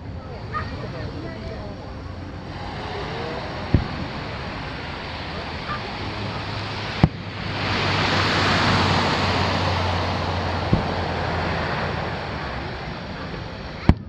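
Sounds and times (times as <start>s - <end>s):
low steady hum: 0.0s - 14.0s
surf washing up sand: 0.0s - 14.0s
dull firework bang: 3.6s - 4.4s, 6.9s - 7.8s, 10.7s - 11.2s.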